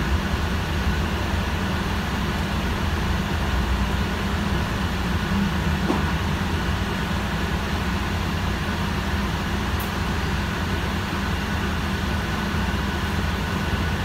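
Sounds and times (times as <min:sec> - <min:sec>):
bus drivetrain and road rumble: 0:00.0 - 0:14.0.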